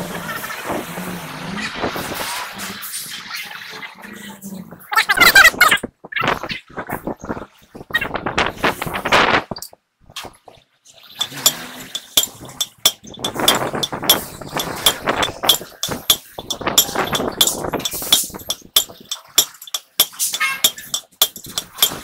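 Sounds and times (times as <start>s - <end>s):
hammer striking steel drift: 11.2s - 22.0s.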